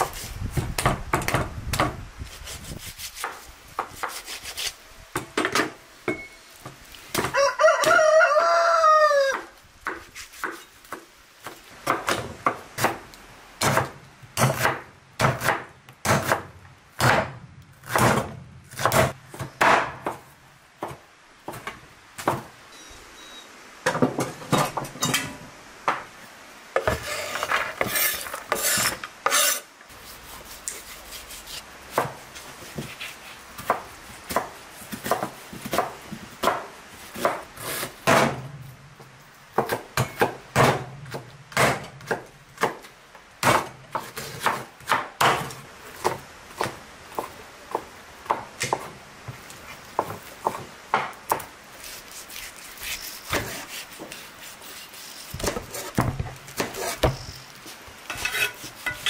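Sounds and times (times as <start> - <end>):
rooster crowing: 7.2 - 9.6.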